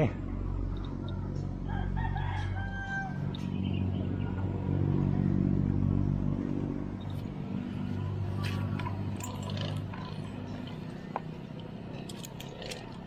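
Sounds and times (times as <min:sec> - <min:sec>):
motor engine humming: 0:03.2 - 0:13.0.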